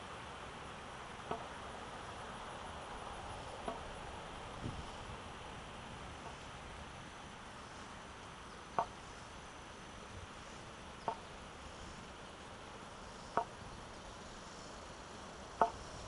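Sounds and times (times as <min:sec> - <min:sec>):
walking stick tapping on asphalt: 0:08.8 - 0:09.0, 0:11.0 - 0:11.3.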